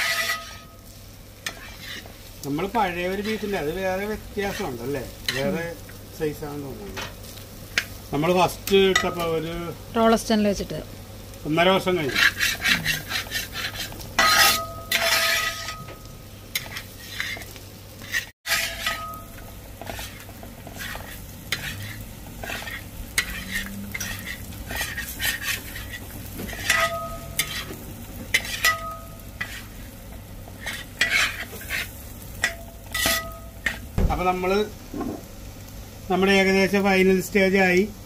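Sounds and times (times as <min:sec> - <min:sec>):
spatula scraping a pan: 0:00.0 - 0:05.7, 0:11.8 - 0:33.9
meat sizzling in a pan: 0:00.0 - 0:38.0.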